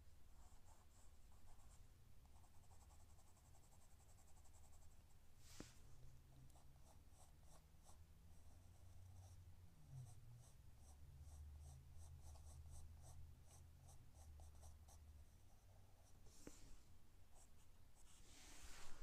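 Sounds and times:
pencil scratching on paper: 0:00.4 - 0:04.9, 0:10.0 - 0:16.6, 0:17.3 - 0:19.0.

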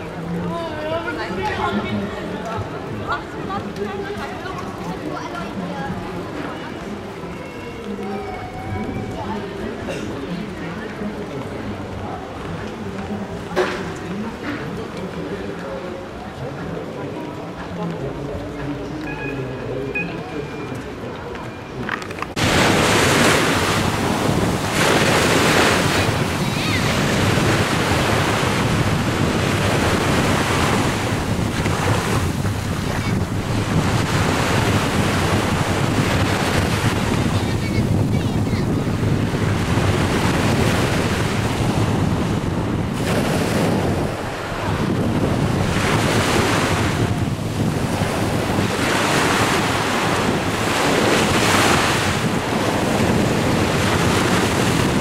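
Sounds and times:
sea waves breaking on sand: 0:22.4 - 0:55.0.

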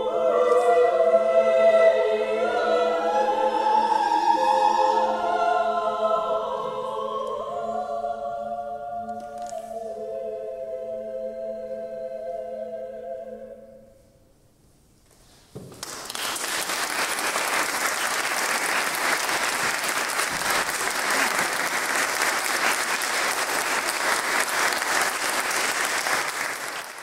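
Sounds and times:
audience applause: 0:15.6 - 0:27.0.

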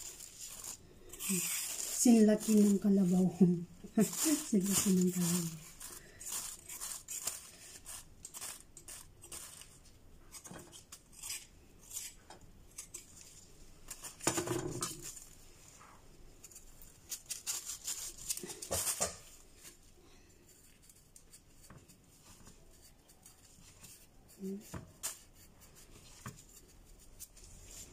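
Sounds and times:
blade scraping carrot skin: 0:00.0 - 0:03.2, 0:03.9 - 0:13.2.

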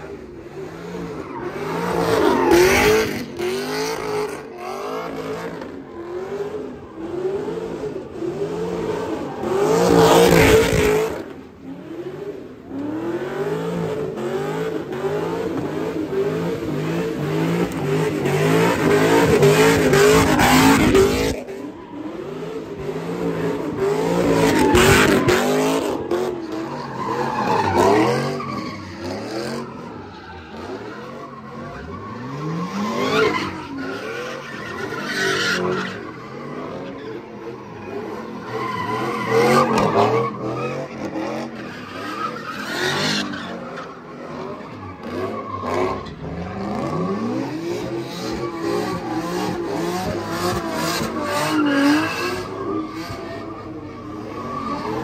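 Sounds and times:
car engine revving: 0:00.0 - 0:55.0
tyre squeal: 0:24.0 - 0:55.0.

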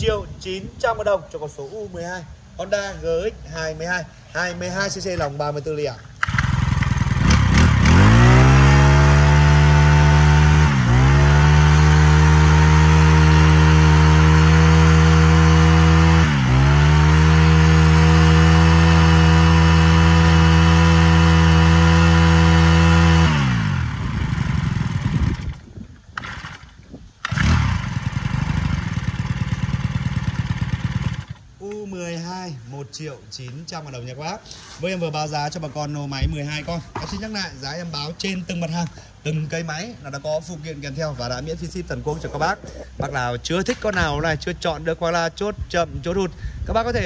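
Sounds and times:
brush cutter engine revving: 0:06.2 - 0:31.5.

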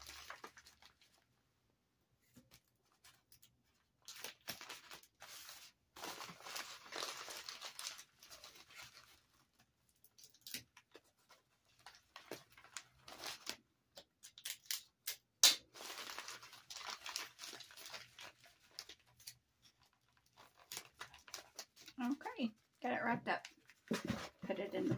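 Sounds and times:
bubble wrap crinkling: 0:00.0 - 0:01.3, 0:02.5 - 0:13.7, 0:15.7 - 0:24.6.

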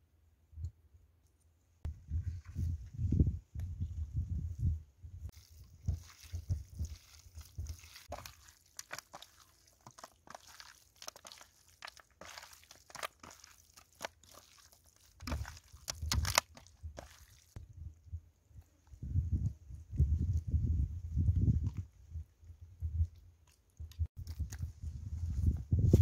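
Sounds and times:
wet squelching of kneaded meat: 0:05.3 - 0:17.6.

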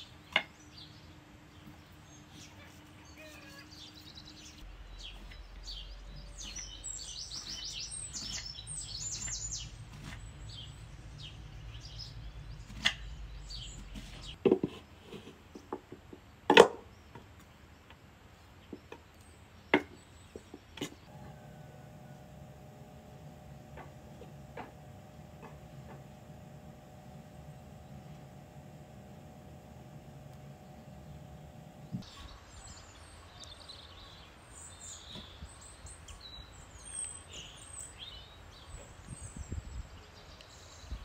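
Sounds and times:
small birds chirping: 0:00.0 - 0:14.4, 0:24.9 - 0:41.0.

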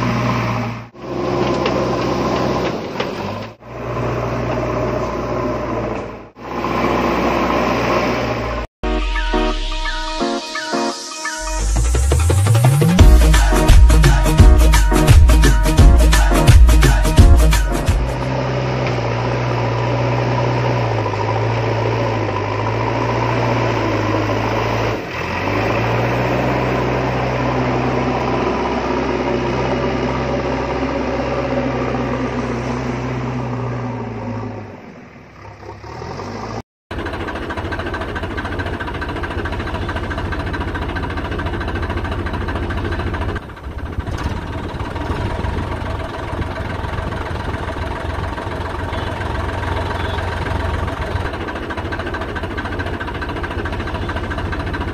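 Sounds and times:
engine idling: 0:35.1 - 0:54.9.

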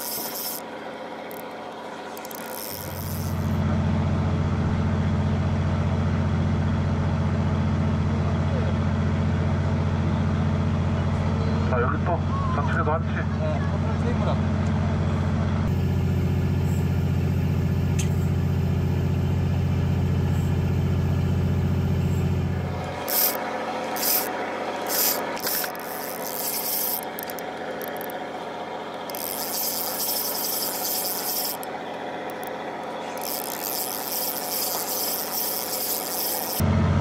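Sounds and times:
gloved hands rubbing fishing reel: 0:00.0 - 0:00.6, 0:01.3 - 0:03.6, 0:22.9 - 0:28.2, 0:29.1 - 0:31.7, 0:32.3 - 0:36.6
low machine hum: 0:00.0 - 0:37.0.

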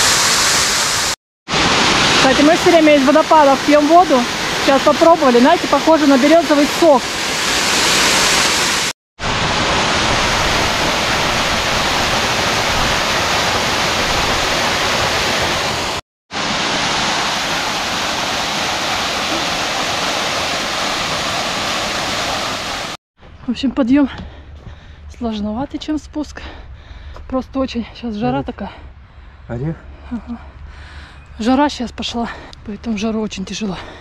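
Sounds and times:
small waterfall splashing into pool: 0:00.0 - 0:23.0.

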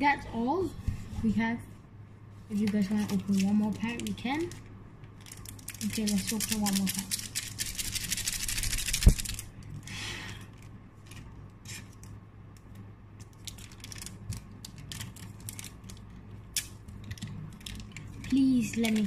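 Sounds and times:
foil wrapper crinkling: 0:02.6 - 0:04.6, 0:05.2 - 0:09.5, 0:13.2 - 0:19.0.

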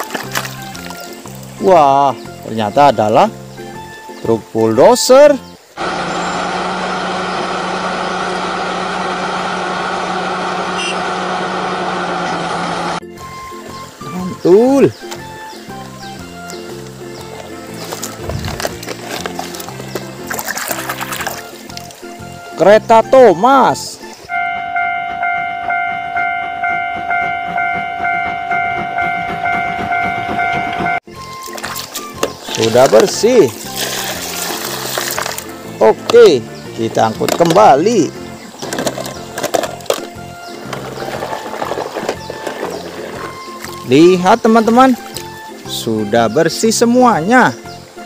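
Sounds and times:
diesel engine running steadily: 0:05.8 - 0:13.5, 0:24.3 - 0:31.0
steam locomotive whistle: 0:10.7 - 0:11.1, 0:24.3 - 0:31.0.

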